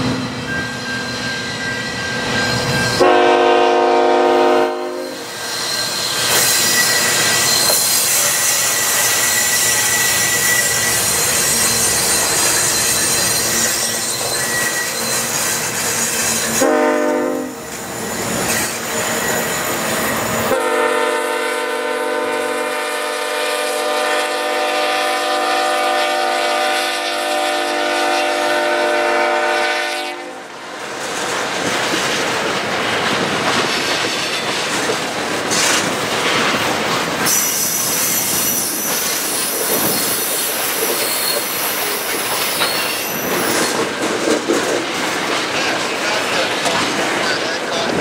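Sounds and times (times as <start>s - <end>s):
rail cars rumbling and clacking: 0.0s - 48.0s
high wheel squeal: 0.2s - 3.1s, 5.0s - 20.6s, 37.2s - 44.0s
locomotive horn chord: 3.0s - 5.2s, 16.6s - 17.6s, 20.5s - 30.5s.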